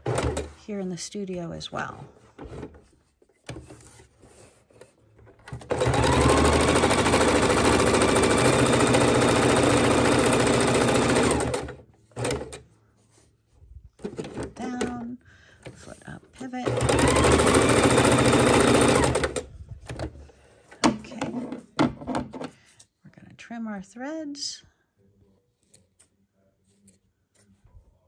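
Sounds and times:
electric sewing machine stitching: 0.0 - 0.6, 5.4 - 12.6, 16.6 - 19.5.

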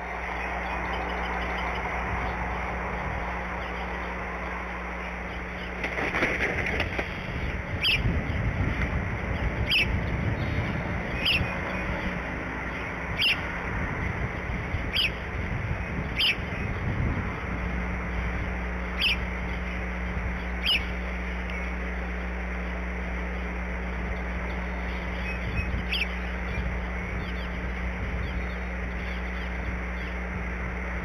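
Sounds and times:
dry grass and sticks rustling: 0.1 - 7.8.

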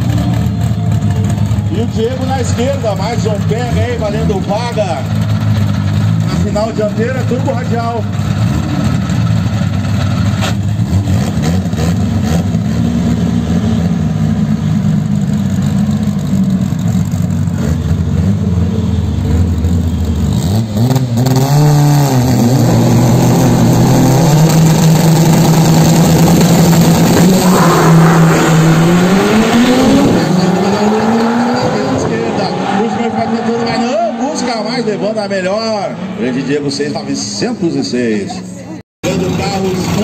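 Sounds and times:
car engines idling: 0.0 - 20.8, 22.4 - 40.0
car engines revving high: 0.0 - 37.9.

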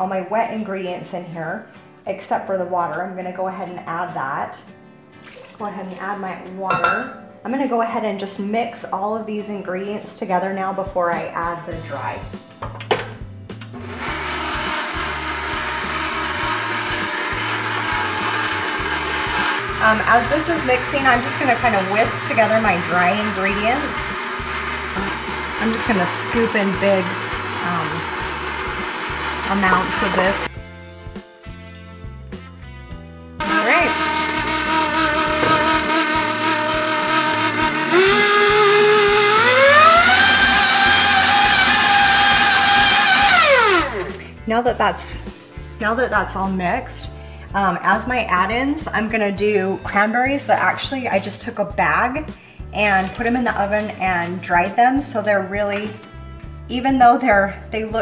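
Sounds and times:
beater working thick batter: 13.6 - 30.5, 33.4 - 44.2
stand mixer running: 13.6 - 30.5, 33.4 - 44.2.

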